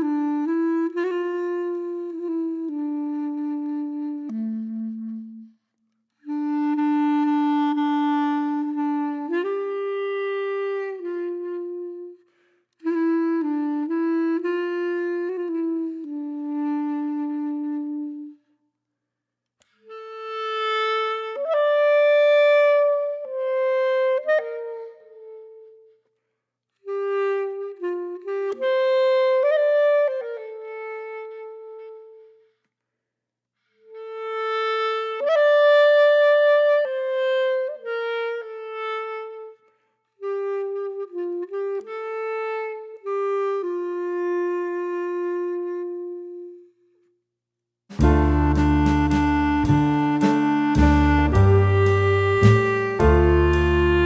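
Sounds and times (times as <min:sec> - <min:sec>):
melody of held notes: 0:48.0 - 0:54.0.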